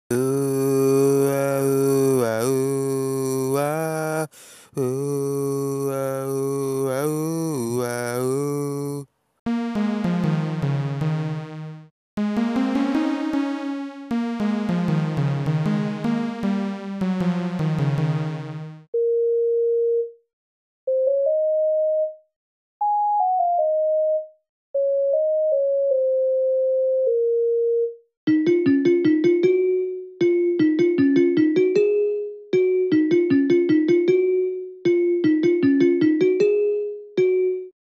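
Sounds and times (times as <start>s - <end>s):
low male chanting: 0.1s - 9.1s
electric keyboard chords: 9.5s - 18.9s, 20.9s - 22.2s, 22.8s - 37.7s.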